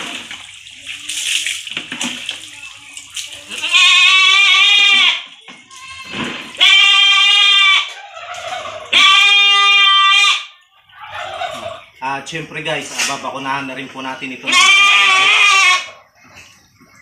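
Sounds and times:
goat bleating: 0:03.5 - 0:08.0, 0:08.9 - 0:10.6, 0:14.4 - 0:16.0.

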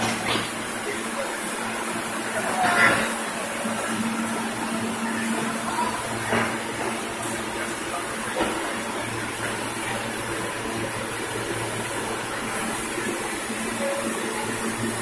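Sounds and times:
subway train hum and hiss: 0:00.0 - 0:15.0.

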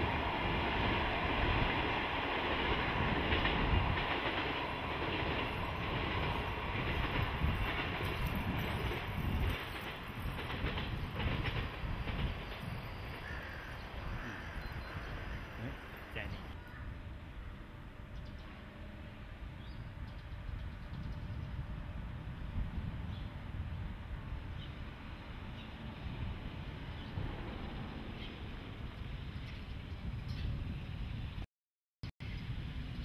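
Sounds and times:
freight train rumbling past: 0:00.0 - 0:31.4
wheels clacking over rail joints: 0:00.2 - 0:14.2.

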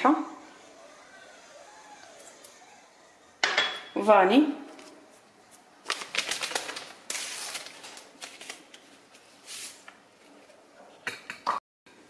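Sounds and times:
paper ripping: 0:05.5 - 0:08.8
paper sachet crinkling: 0:05.5 - 0:09.7.

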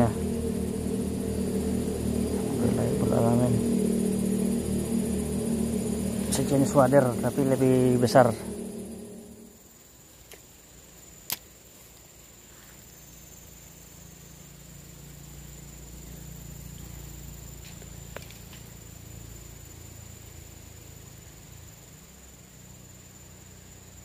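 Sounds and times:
low rumble: 0:00.0 - 0:10.0
high-pitched insect drone: 0:00.0 - 0:24.0.

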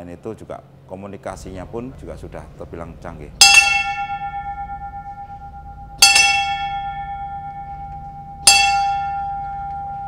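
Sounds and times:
ship's bell ringing: 0:02.2 - 0:10.0.

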